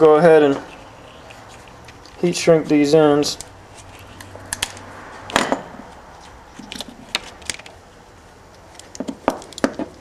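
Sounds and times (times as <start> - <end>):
rustling: 0.3 - 7.9.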